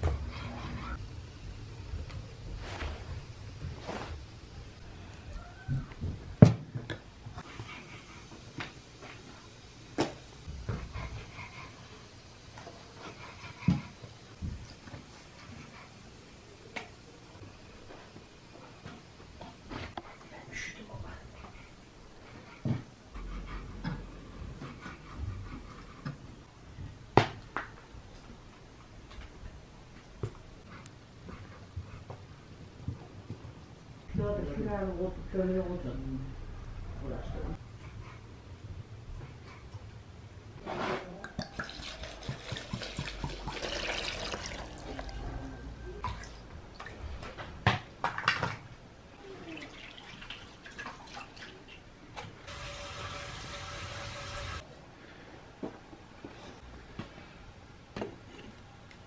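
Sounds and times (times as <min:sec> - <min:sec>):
water splashing and dripping: 0:41.4 - 0:45.1, 0:49.4 - 0:51.9.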